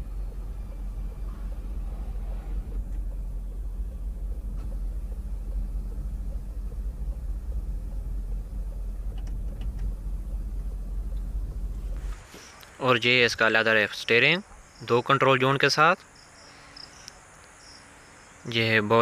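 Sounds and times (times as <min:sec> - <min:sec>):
low rumble inside car: 0:00.0 - 0:14.7
faint clicks: 0:16.9 - 0:17.6.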